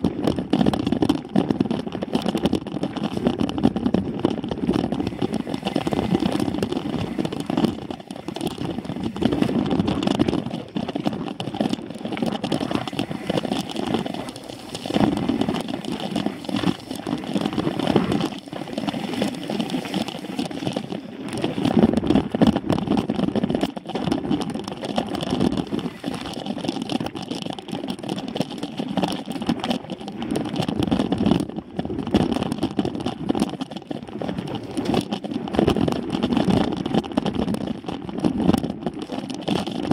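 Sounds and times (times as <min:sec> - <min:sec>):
wind buffeting microphone: 0:00.0 - 0:26.4
bike rattling over bumps: 0:00.0 - 0:39.9
bike tyres rumbling on dirt: 0:00.0 - 0:39.9.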